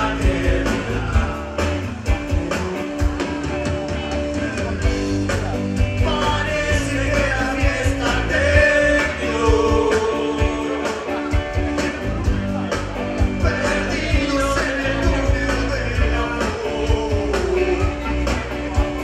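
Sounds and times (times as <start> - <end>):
lead singer singing: 0.0 - 2.7, 5.8 - 11.9, 13.2 - 19.0
backing voices: 0.0 - 19.0
rock band playing: 0.0 - 19.0.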